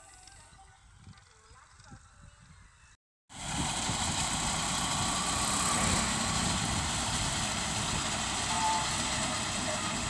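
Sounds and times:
tractor diesel engine running: 3.3s - 10.0s.

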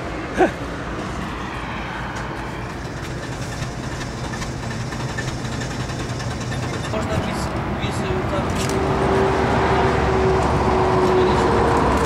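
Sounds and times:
road rumble: 0.0s - 12.0s
car engine running: 2.2s - 8.8s.

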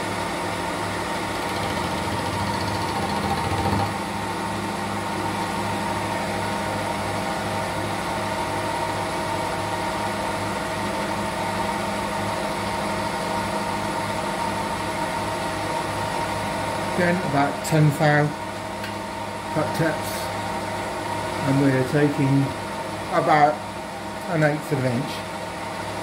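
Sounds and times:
milling machine cutting metal: 0.0s - 11.8s.

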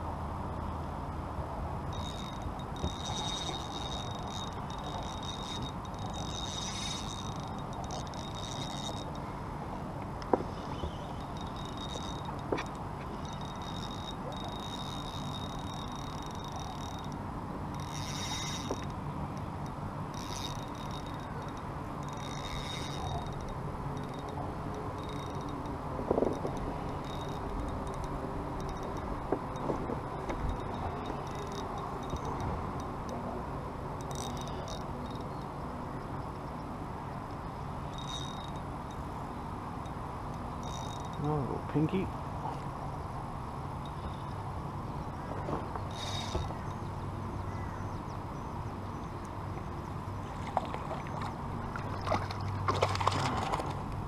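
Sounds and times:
fishing reel clicking: 1.9s - 33.3s, 33.9s - 42.0s, 43.8s - 49.4s
light ticks: 10.0s - 33.2s.

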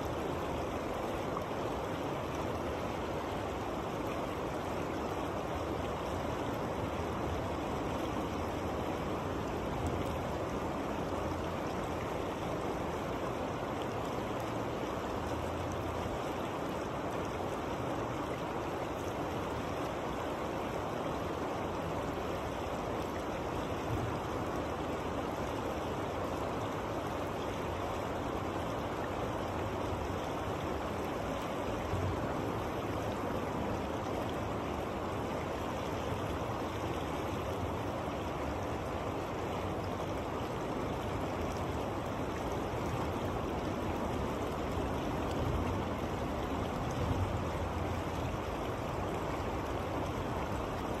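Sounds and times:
river rushing over rocks: 0.0s - 51.0s.

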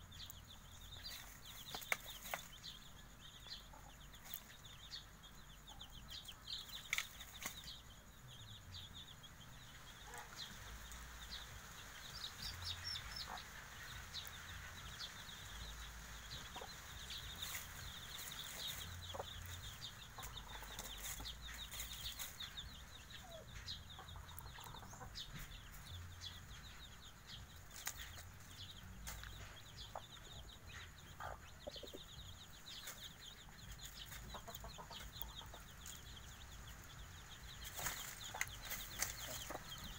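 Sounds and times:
chicks peeping: 0.0s - 39.9s
hen clucking: 16.4s - 22.4s, 33.8s - 36.0s
scratching in dry leaves: 17.3s - 19.6s, 20.3s - 22.6s, 37.6s - 39.9s.

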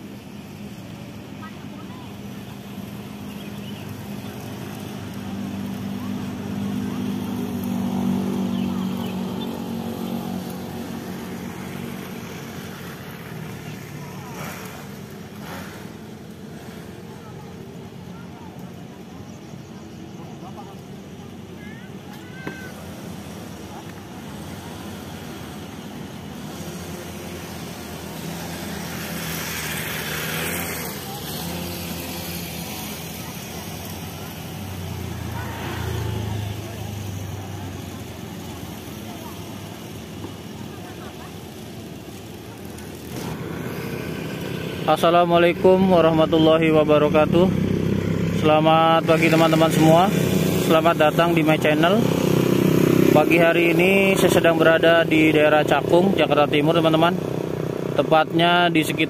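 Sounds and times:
background traffic noise: 0.0s - 59.0s
vehicle engine passing by: 0.2s - 59.0s.

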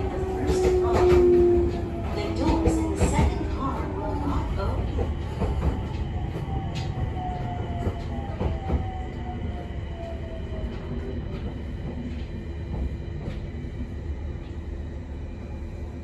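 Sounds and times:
wheel and track rumble: 0.0s - 9.8s.

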